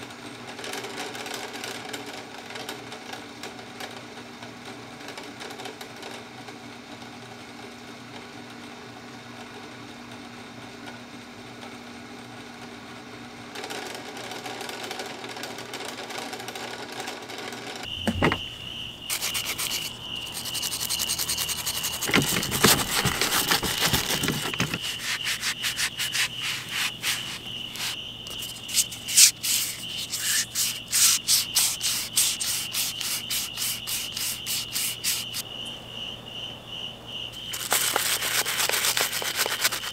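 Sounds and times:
stiff brush scrubbing parts: 17.9 - 35.4, 37.4 - 39.9.

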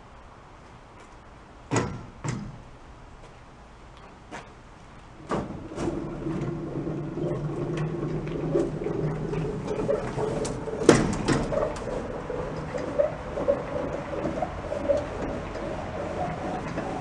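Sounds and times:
metal hull scraping on trailer: 5.2 - 17.0
winch clicking: 5.2 - 17.0.

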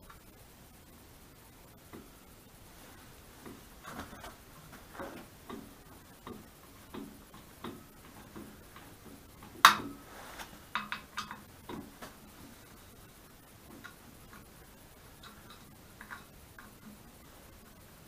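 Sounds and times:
small metallic taps: 3.4 - 10.0, 10.7 - 12.2, 15.2 - 17.0.

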